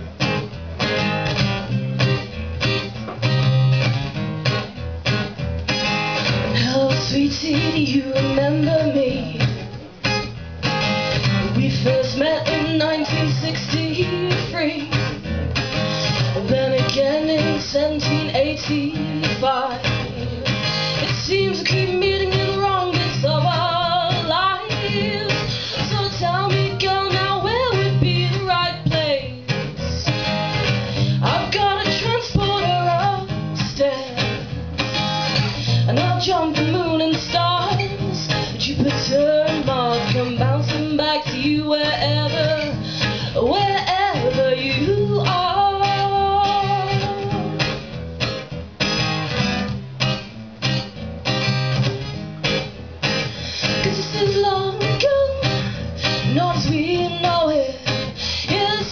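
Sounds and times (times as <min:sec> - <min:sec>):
acoustic guitar strumming: 0:00.0 - 0:58.9
woman singing: 0:06.3 - 0:10.0, 0:11.1 - 0:15.3, 0:16.0 - 0:34.5, 0:35.3 - 0:47.8, 0:53.6 - 0:58.9.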